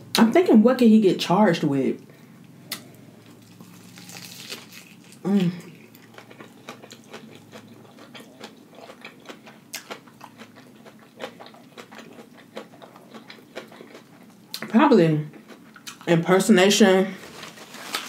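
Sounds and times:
close-up wet chewing: 0:02.4 - 0:14.6
lettuce crunch: 0:02.7 - 0:14.6, 0:17.3 - 0:18.0
person humming mmm: 0:05.2 - 0:05.8.

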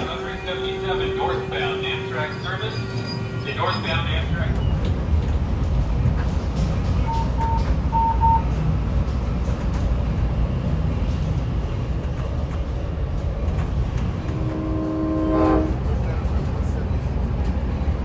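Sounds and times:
train carriage rumble: 0:00.0 - 0:18.0
short beeps: 0:07.1 - 0:08.5.

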